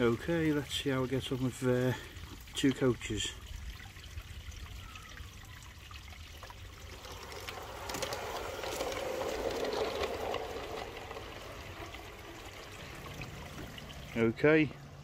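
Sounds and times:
model train rattling on track: 7.0s - 14.0s.

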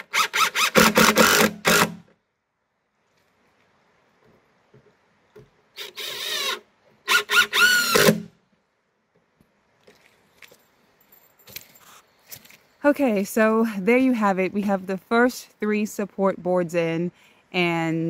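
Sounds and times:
cordless drill driving screws: 0.0s - 2.0s, 5.8s - 8.3s.

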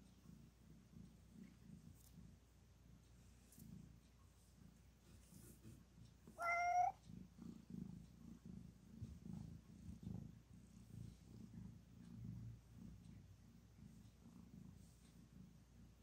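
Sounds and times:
cat purring: 0.0s - 16.0s
cat meowing: 6.4s - 7.0s.

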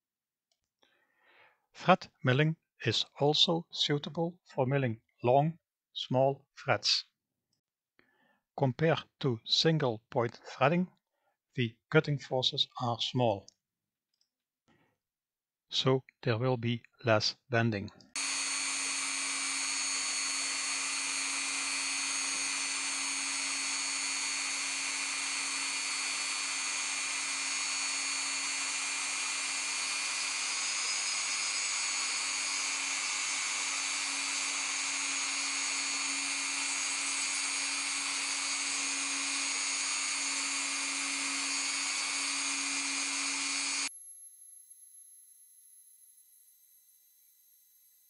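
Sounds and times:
rotary tool whining: 18.1s - 48.0s.

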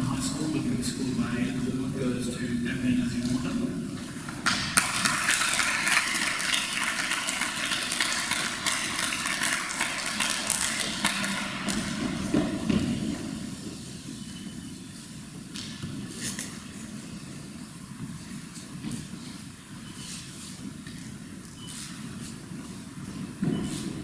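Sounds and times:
audience applauding: 4.4s - 13.1s.

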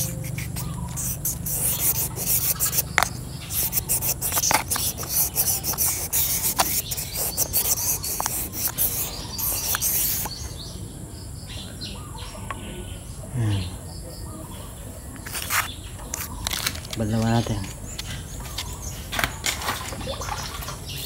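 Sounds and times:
sandpaper rasping in metal cylinder: 0.0s - 10.4s.

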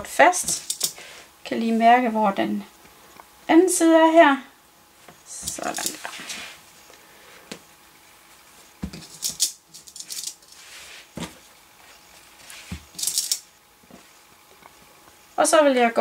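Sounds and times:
fabric rustling: 10.1s - 13.2s.

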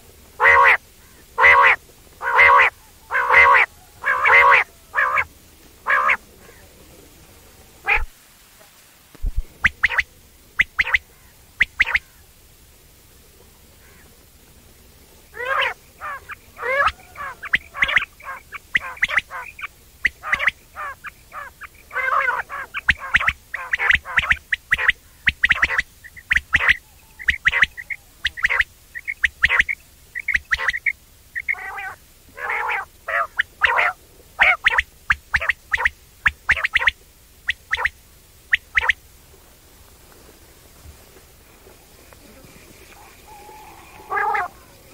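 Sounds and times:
quail calling: 0.0s - 6.8s, 7.8s - 8.1s, 9.5s - 12.3s, 15.3s - 39.0s, 42.1s - 44.9s.

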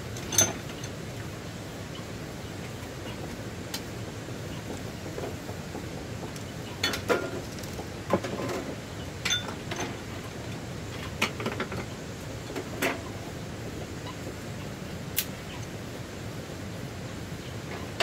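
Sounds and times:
steady background hiss: 0.0s - 18.0s.

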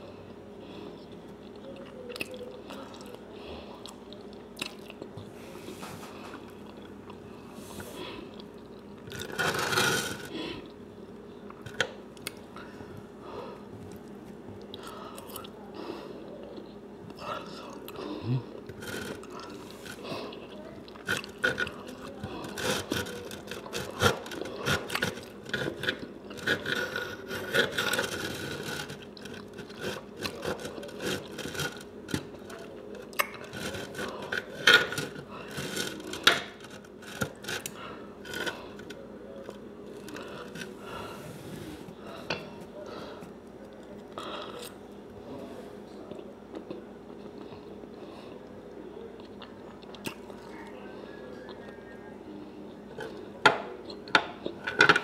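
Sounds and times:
knife and fork scraping a plate: 9.2s - 10.3s, 22.4s - 32.3s, 33.4s - 37.7s.

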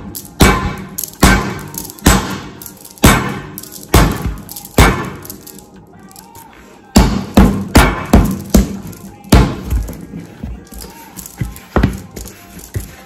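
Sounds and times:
fists punching dough: 0.4s - 5.1s, 7.0s - 10.0s.

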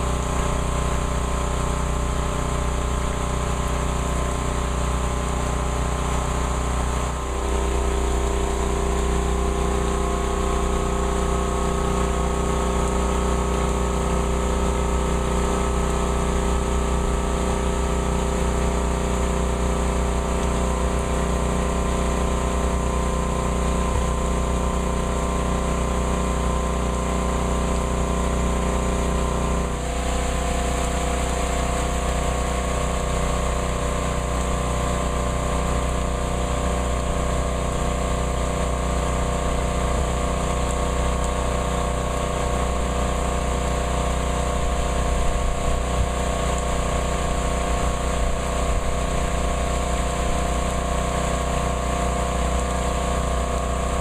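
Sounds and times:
heavy rain hissing: 27.8s - 54.0s.

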